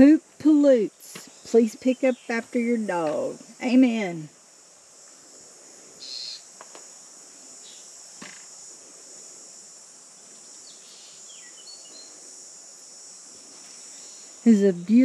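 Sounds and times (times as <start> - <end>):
high-pitched insect chorus: 0.0 - 15.0
bird chirps: 6.0 - 6.5.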